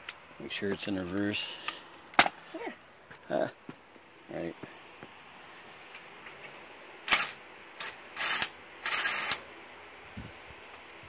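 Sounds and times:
impact driver bursts: 0:07.1 - 0:09.4.

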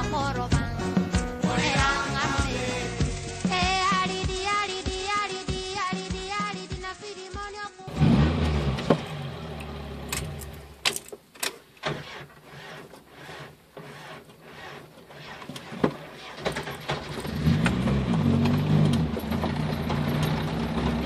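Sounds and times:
vehicle engine running: 0:07.9 - 0:10.8, 0:17.0 - 0:21.0
bodywork rattling: 0:15.0 - 0:21.0.

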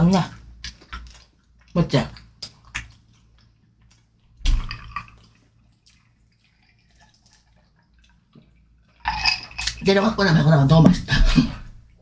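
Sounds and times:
wet eating sounds: 0:00.0 - 0:12.0
mouth clicks and smacks: 0:00.6 - 0:06.1.

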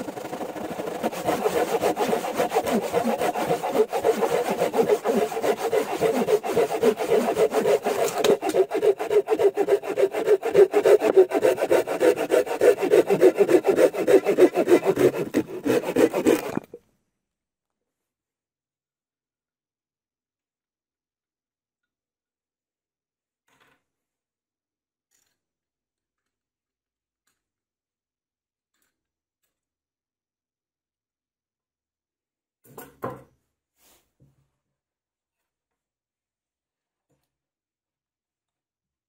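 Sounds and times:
hand saws cutting logs: 0:00.0 - 0:16.8.

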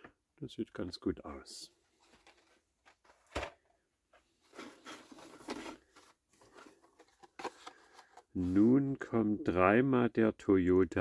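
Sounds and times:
packaging rustling and scraping: 0:02.0 - 0:03.4, 0:04.3 - 0:08.8.

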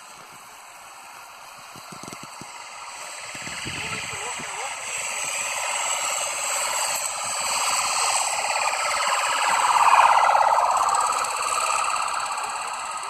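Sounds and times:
police siren wailing: 0:07.7 - 0:13.0.

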